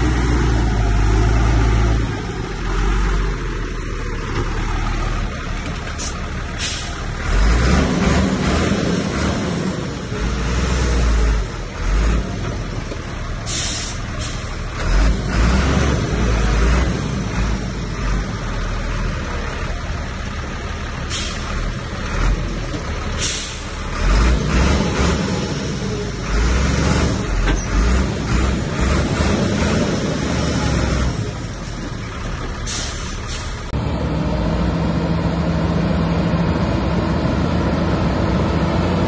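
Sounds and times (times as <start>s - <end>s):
bulldozer diesel engine rumbling: 0.0s - 39.0s
short hisses: 13.5s - 14.5s, 23.2s - 23.7s, 32.7s - 33.7s.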